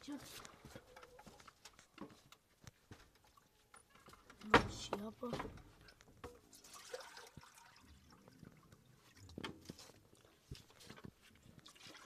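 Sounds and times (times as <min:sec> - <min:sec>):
water trickling into metal cup: 0:05.8 - 0:09.4.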